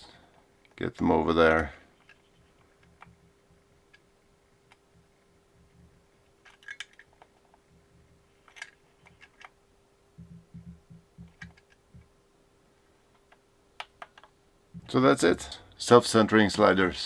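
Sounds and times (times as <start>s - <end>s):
faint steady hum: 0.0s - 17.0s
plastic clicks and clatter: 6.4s - 7.6s, 8.4s - 9.6s, 10.6s - 12.1s, 13.1s - 14.4s
soft low knocks: 10.2s - 12.1s.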